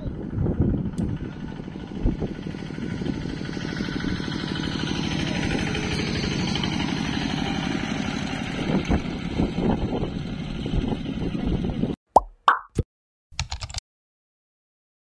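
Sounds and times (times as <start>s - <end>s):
tractor diesel engine chugging: 0.0s - 11.9s.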